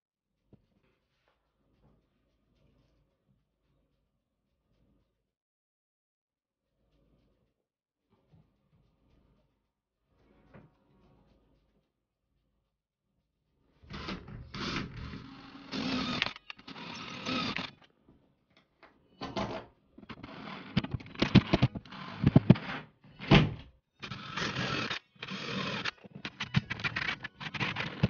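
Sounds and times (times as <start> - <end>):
cordless drill boring into drywall: 13.9 - 17.9, 20.2 - 22.8, 24.0 - 26.0
sharp clicks and knocks: 18.6 - 22.8, 24.0 - 28.0
hand tool scraping drywall: 24.0 - 28.0.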